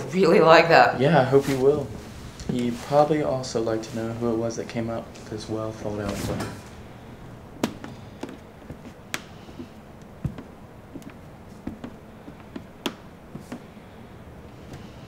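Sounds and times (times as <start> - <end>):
footsteps on hard floor: 7.6 - 13.7.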